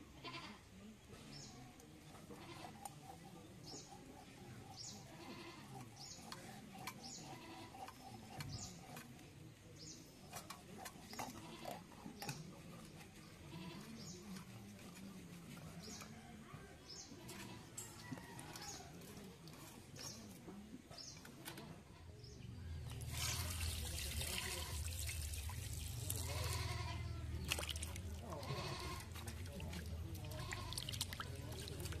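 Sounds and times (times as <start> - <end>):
goat bleating: 0.2 - 0.6, 2.3 - 2.8, 5.1 - 5.8, 7.2 - 7.8, 11.2 - 11.9, 13.4 - 14.0, 26.2 - 27.3, 28.3 - 29.2, 30.2 - 30.9
small birds chirping: 3.3 - 11.3.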